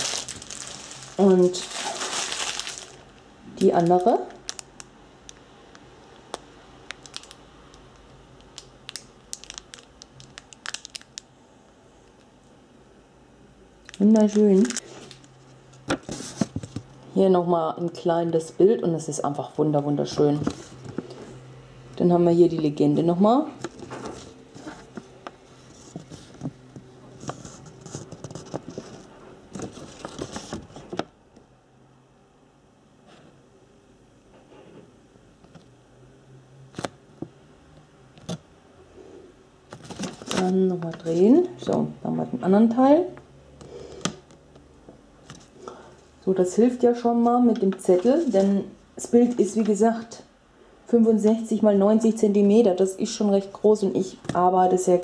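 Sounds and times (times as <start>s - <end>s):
plastic bags crinkling: 0.0s - 11.3s, 13.8s - 15.4s, 27.2s - 31.0s, 39.7s - 40.6s
small irregular crackles and clicks: 3.6s - 11.3s.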